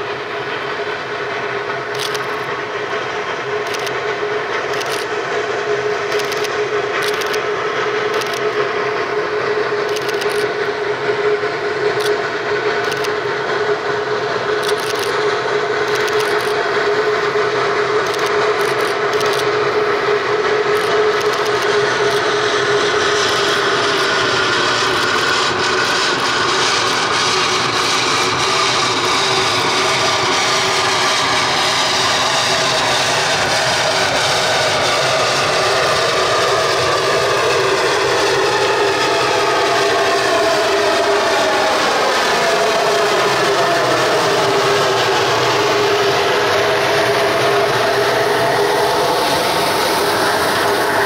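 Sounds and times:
steam train running: 0:00.0 - 0:51.0
train wheels squealing on rails: 0:00.0 - 0:51.0.

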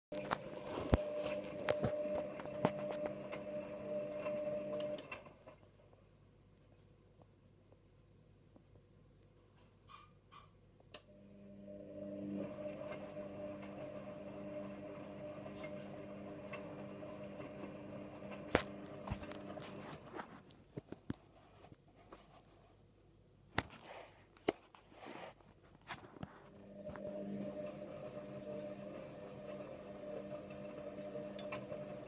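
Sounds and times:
washing machine motor hum: 0:00.1 - 0:05.6, 0:11.1 - 0:20.4, 0:26.3 - 0:32.0.

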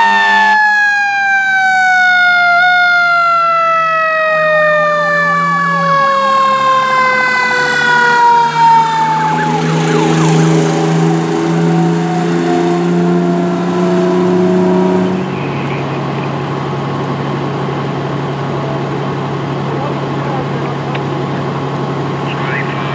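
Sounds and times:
electronic siren yelping: 0:00.0 - 0:16.4
mechanical siren wailing: 0:00.0 - 0:16.5
truck engine and road noise: 0:00.0 - 0:22.9.

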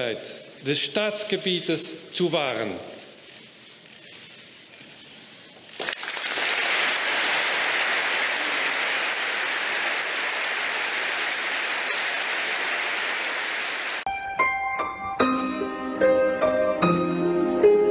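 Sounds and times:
audience applauding: 0:05.8 - 0:14.0.

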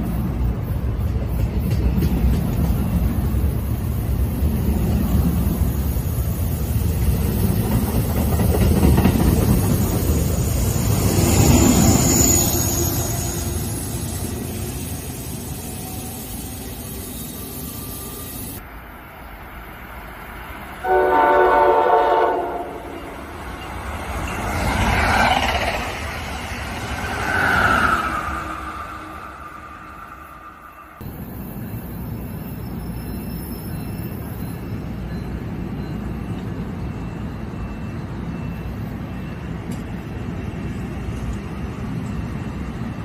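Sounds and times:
train coaches rolling past: 0:00.0 - 0:43.0
train passing at speed: 0:00.0 - 0:43.0
train horn: 0:20.8 - 0:23.1.

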